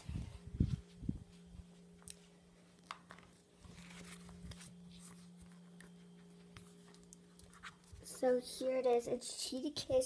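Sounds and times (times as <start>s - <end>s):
soft footsteps: 0.0s - 8.2s
low steady hum: 0.0s - 10.0s
handling rustles: 2.9s - 8.2s.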